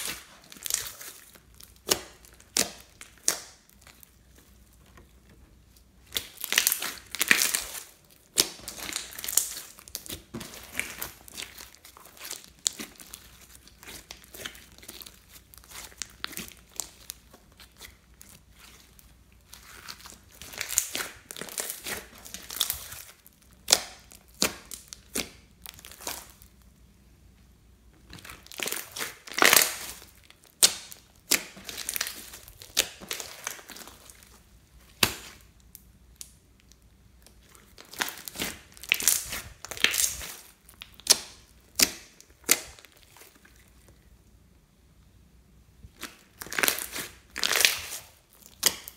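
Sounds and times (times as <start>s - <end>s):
slime crackling and popping: 0.0s - 4.5s, 5.7s - 26.6s, 28.1s - 43.8s, 45.9s - 48.9s.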